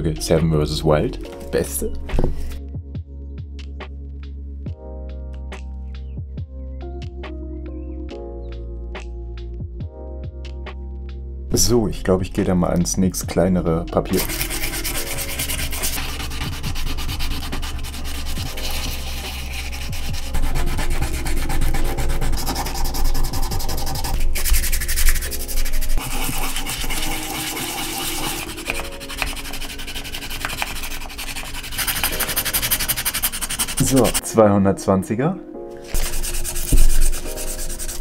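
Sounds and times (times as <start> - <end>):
sandpaper rubbing on wood: 14.1 - 34.2, 35.9 - 38.0.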